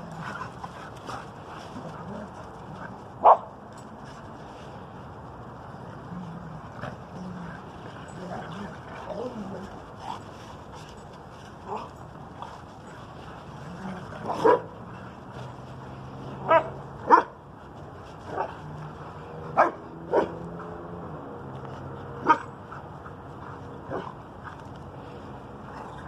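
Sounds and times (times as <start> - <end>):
dogs barking: 3.2 - 3.5, 14.2 - 14.8, 16.4 - 17.4, 19.5 - 20.9, 22.2 - 22.5.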